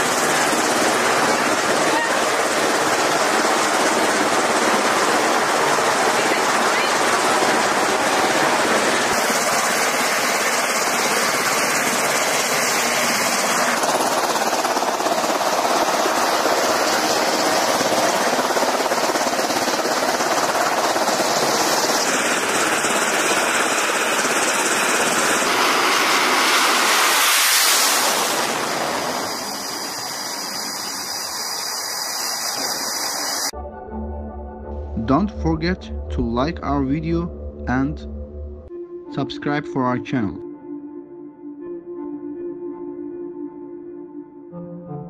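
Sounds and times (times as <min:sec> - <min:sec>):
aircraft engine noise: 0:00.0 - 0:33.6
rushing air: 0:25.2 - 0:33.5.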